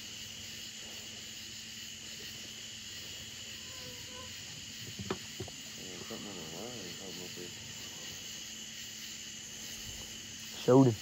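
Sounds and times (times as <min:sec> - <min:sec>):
night insects chirring: 0:00.0 - 0:11.0.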